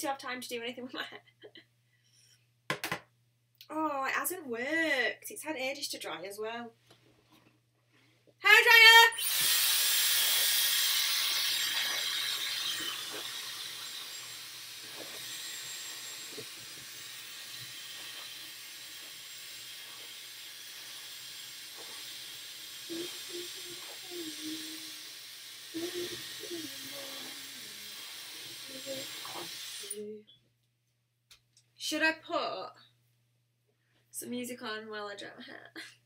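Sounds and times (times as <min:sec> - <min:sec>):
hair dryer blowing: 0:09.1 - 0:30.0.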